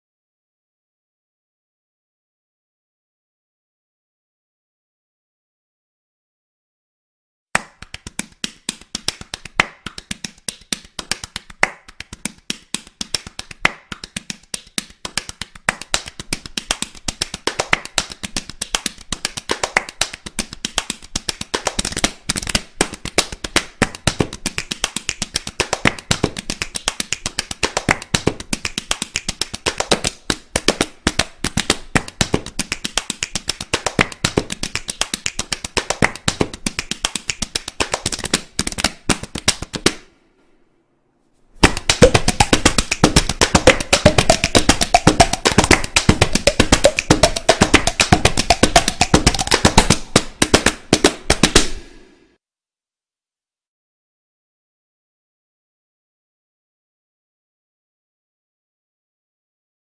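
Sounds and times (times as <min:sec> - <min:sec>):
fast drumming: 0:41.6 - 0:52.0.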